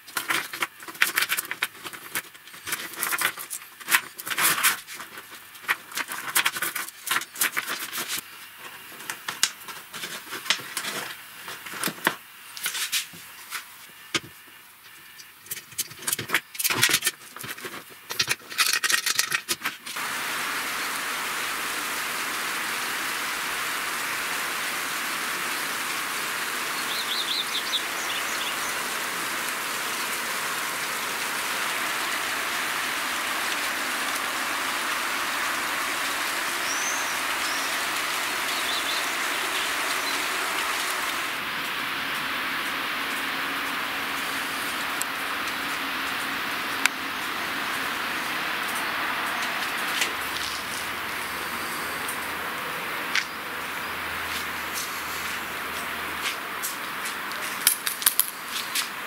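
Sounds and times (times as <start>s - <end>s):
rain hissing: 0.0s - 15.4s, 19.8s - 59.0s
bird chirp: 26.4s - 29.0s, 34.7s - 41.0s.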